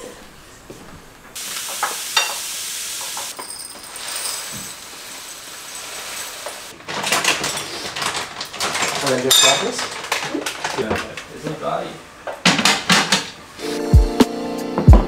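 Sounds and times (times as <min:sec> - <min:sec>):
dishes clinking and clattering: 0:01.6 - 0:11.3, 0:12.3 - 0:13.4
grain poured into glass jar: 0:03.3 - 0:06.7.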